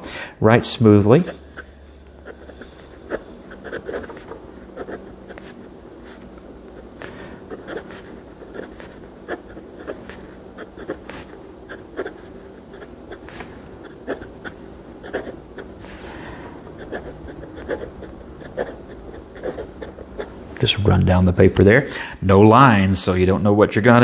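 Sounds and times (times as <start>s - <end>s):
faint steady hum: 0.0s - 24.0s
fountain pen writing on paper: 1.5s - 5.5s, 7.5s - 15.7s, 16.8s - 20.3s.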